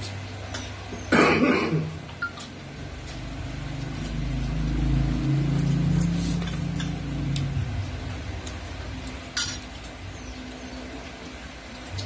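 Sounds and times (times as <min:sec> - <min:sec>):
vehicle engine passing by: 0:02.7 - 0:09.1
dishes clinking: 0:09.3 - 0:09.7.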